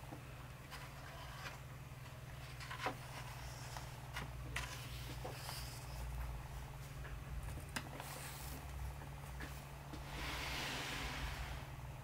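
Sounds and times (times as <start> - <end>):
book pages turning: 2.4 - 6.3.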